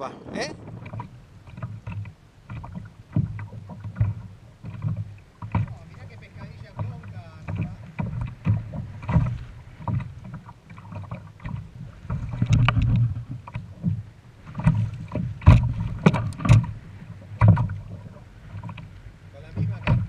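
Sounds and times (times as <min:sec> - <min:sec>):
knocks against kayak: 0:00.6 - 0:05.8, 0:06.4 - 0:18.9, 0:19.5 - 0:20.0.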